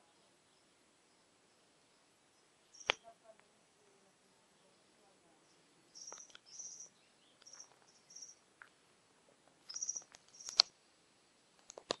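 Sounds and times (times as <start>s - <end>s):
high-pitched chirping: 6.0s - 8.4s, 9.7s - 10.6s
sharp click: 9.7s - 10.7s.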